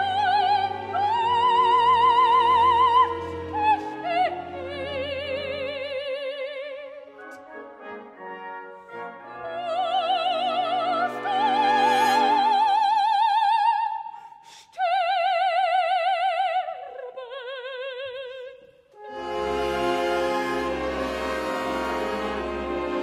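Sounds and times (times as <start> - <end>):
operatic soprano singing: 0.0 - 7.4, 9.1 - 18.8.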